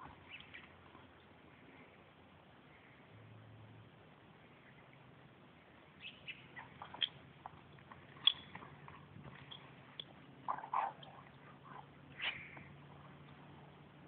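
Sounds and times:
dog chewing with crunches: 6.8 - 12.3.

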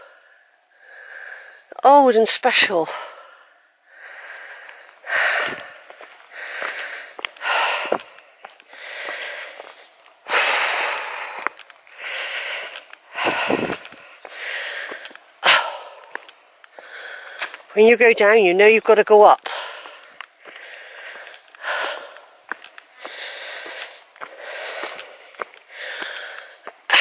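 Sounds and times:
heavy breathing: 0.0 - 1.8, 2.7 - 17.7, 19.4 - 27.0.

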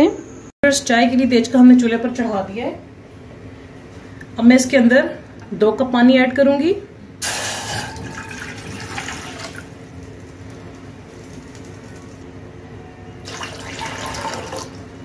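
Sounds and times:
water pouring into metal saucepan: 7.6 - 9.8, 13.3 - 14.8.

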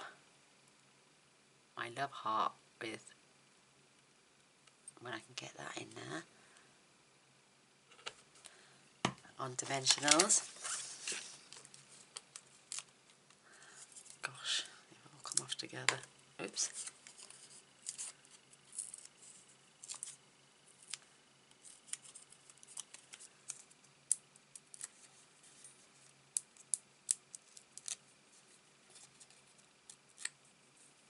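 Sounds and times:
paper and plastic crinkling: 9.6 - 12.9, 16.6 - 20.2, 20.8 - 23.8.

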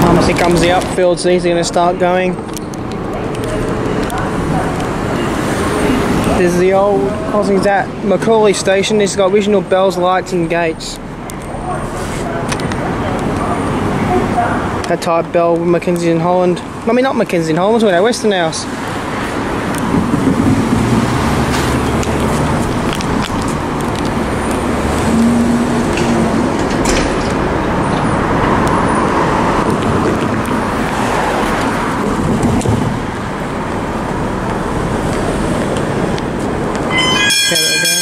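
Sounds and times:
road traffic rumble: 0.0 - 38.0.

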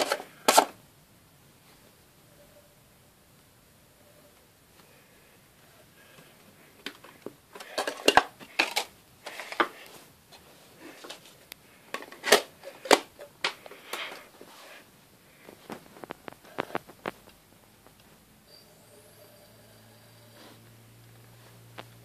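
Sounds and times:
compact discs clicking and clattering: 0.0 - 0.8, 6.7 - 10.0, 10.9 - 14.3, 15.4 - 18.1
discs scraping: 15.4 - 17.4.

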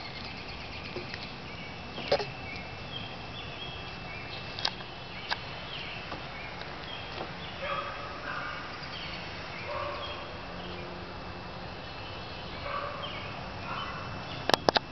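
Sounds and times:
dog barking: 7.6 - 8.7, 9.7 - 10.2, 12.6 - 14.1.

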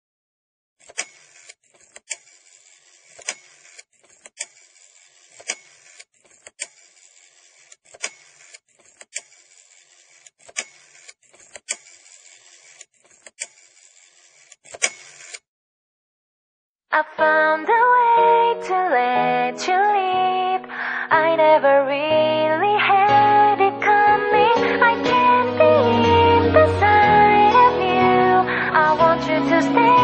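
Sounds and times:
mechanical whir: 0.8 - 15.4
sharp clicks: 7.6 - 9.5, 10.2 - 12.0.

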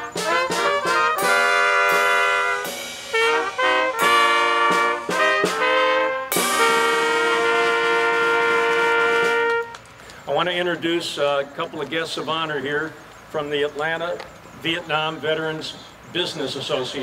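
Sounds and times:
brass band music: 0.0 - 11.3.

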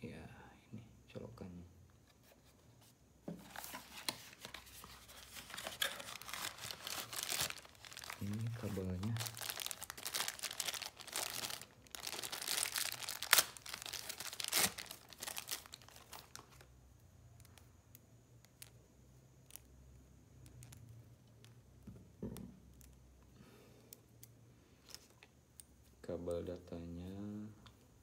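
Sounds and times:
plastic bag crinkling and tearing: 4.8 - 16.7.

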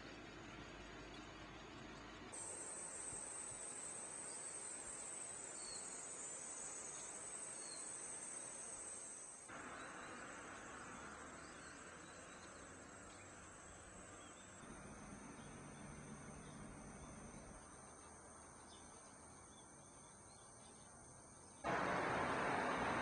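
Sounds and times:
soft hiss: 0.0 - 15.7
night insects chorus: 2.3 - 23.0.

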